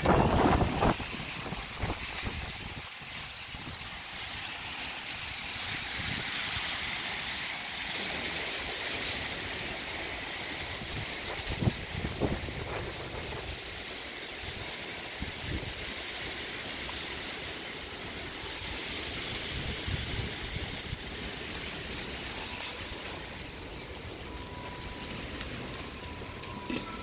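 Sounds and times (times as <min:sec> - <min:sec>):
wind gusts buffeting microphone: 0:00.0 - 0:03.8, 0:10.7 - 0:13.8
storm wind blowing: 0:00.0 - 0:04.5, 0:10.6 - 0:16.5, 0:17.5 - 0:27.0.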